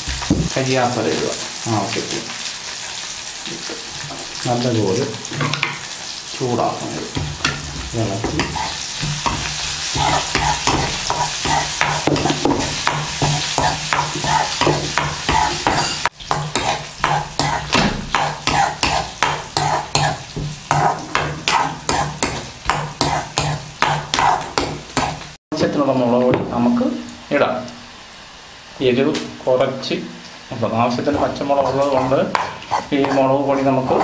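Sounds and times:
oil sizzling: 0:00.0 - 0:34.0
spatula scraping metal pan: 0:07.1 - 0:25.4, 0:31.0 - 0:34.0.

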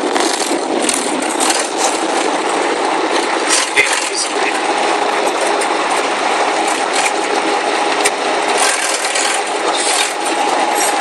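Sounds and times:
jet engine cabin roar: 0:00.0 - 0:11.0
steady hum: 0:00.0 - 0:11.0.

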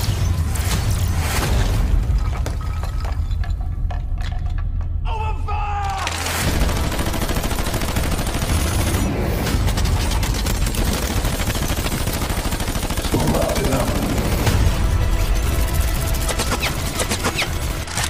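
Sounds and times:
rapid automatic gunfire: 0:06.2 - 0:18.0.

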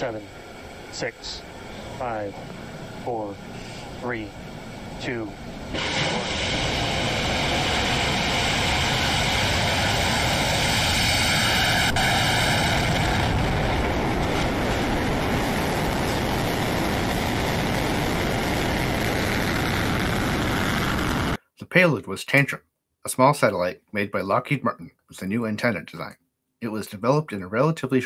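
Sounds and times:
rocket engine rumble: 0:00.0 - 0:21.4
sharp crack: 0:05.1 - 0:21.4.

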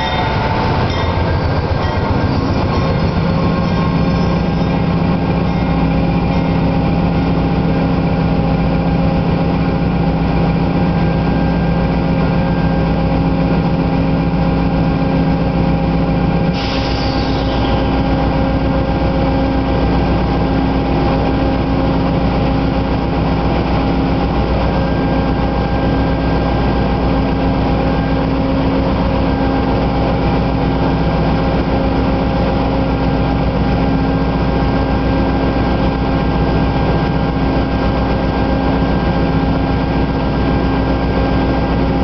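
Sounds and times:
locomotive diesel engine idling: 0:00.0 - 0:16.4.

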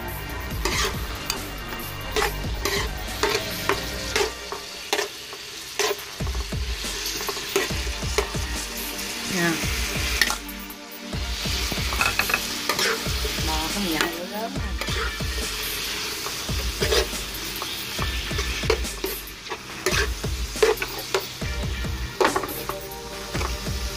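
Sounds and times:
food sizzling in frying pan: 0:00.0 - 0:23.9
metal utensil scraping pan: 0:00.6 - 0:06.1, 0:07.0 - 0:08.3, 0:11.7 - 0:21.4.

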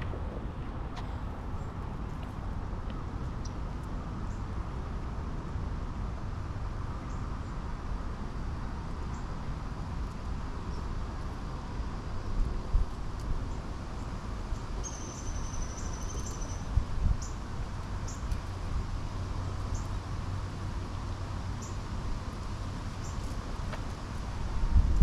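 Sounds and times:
low rumble: 0:00.0 - 0:02.5.

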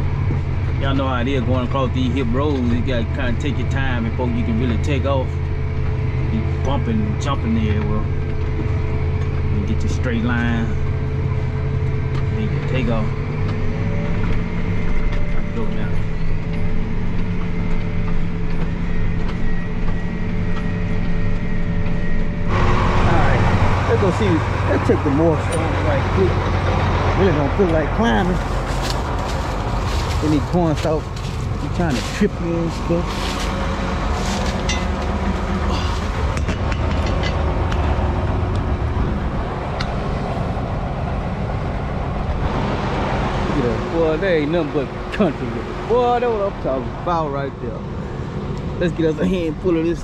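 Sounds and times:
combine harvester rumbling: 0:00.0 - 0:50.0
tractor engine running: 0:00.0 - 0:50.0
cab rattles and creaks: 0:24.0 - 0:42.5.

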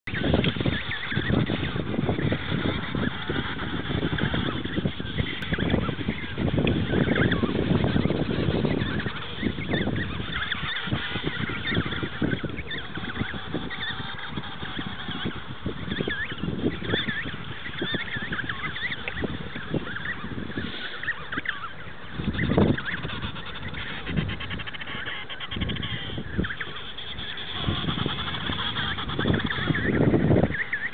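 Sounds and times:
penguins calling: 0:00.1 - 0:30.9.

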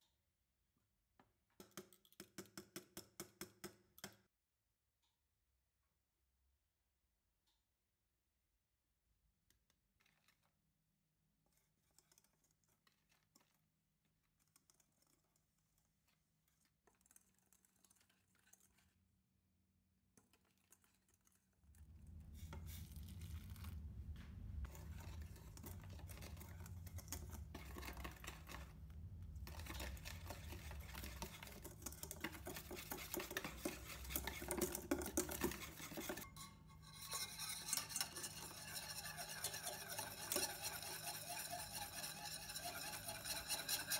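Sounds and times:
whisk scraping in metal bowl: 0:14.4 - 0:18.8, 0:20.4 - 0:43.9.

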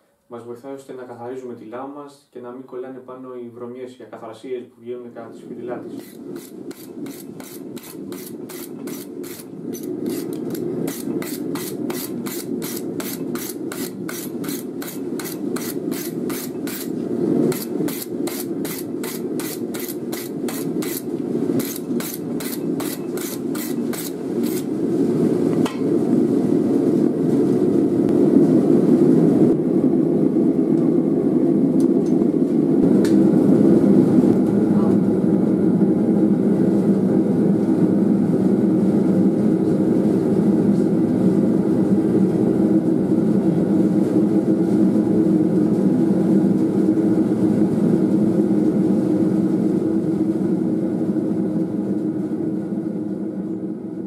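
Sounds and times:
wire brush scraping steel: 0:05.9 - 0:24.7
forge low rushing noise: 0:20.4 - 0:36.5.

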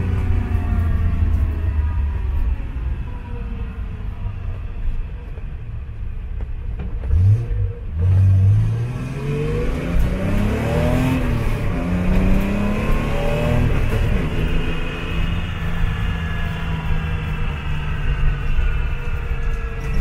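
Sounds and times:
race car engine accelerating: 0:07.0 - 0:20.0.

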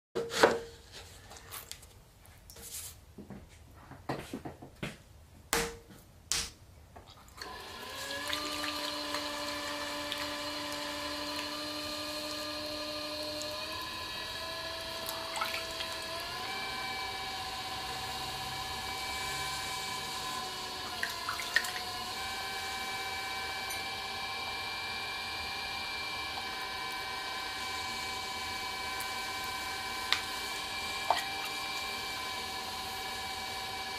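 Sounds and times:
pottery wheel motor humming: 0:07.4 - 0:33.9.

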